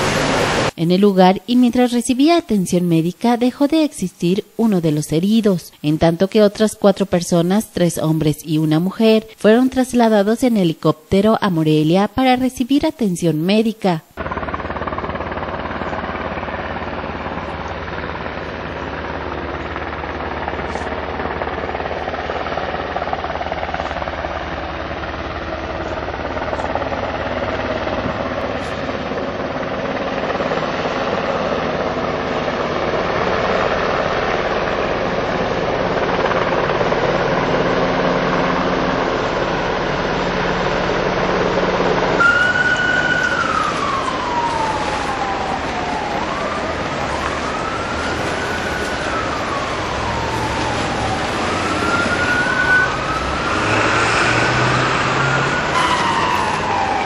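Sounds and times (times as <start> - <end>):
helicopter engine and rotor drone: 14.1 - 57.0
ambulance siren wailing: 36.3 - 57.0.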